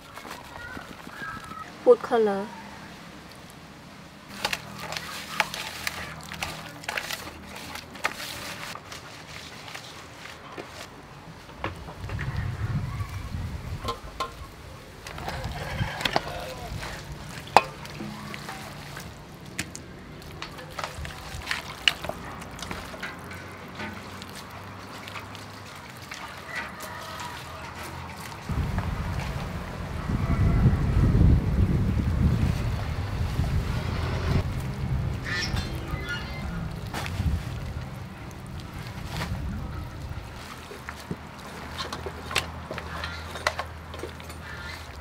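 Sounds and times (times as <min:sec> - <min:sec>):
hands squelching wet marinade: 0:04.2 - 0:10.9, 0:13.8 - 0:30.8, 0:31.4 - 0:45.0
low steady rumble: 0:28.5 - 0:40.4.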